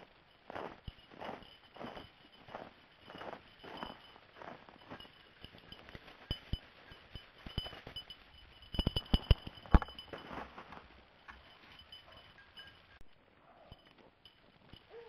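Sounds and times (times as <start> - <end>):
footsteps crunching in snow: 0.0 - 6.1, 10.1 - 11.0.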